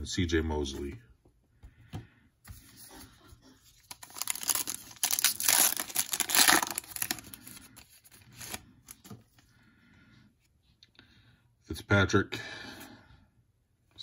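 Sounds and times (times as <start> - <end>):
foil wrapper tearing and crinkling: 3.8 - 8.6.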